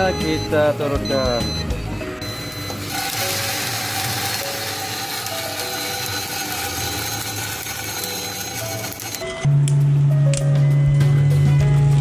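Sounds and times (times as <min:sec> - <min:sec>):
machine motors humming: 0:01.5 - 0:09.7.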